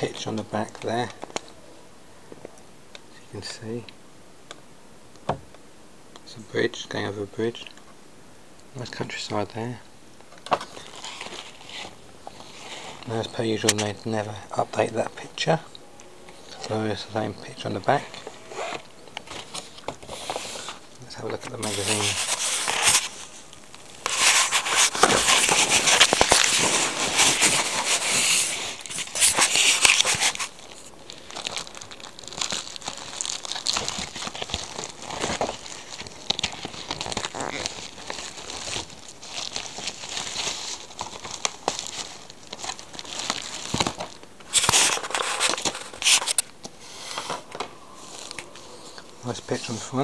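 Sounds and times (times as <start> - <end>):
magazine pages rustling: 10.4 - 15.6, 16.3 - 50.0
plastic packaging crinkling: 10.4 - 15.7, 16.3 - 50.0.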